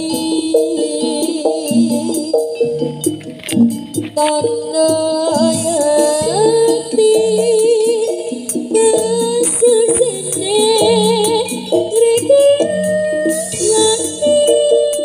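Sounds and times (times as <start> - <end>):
light percussion: 0.0 - 15.0
ornamented melody: 0.0 - 15.0.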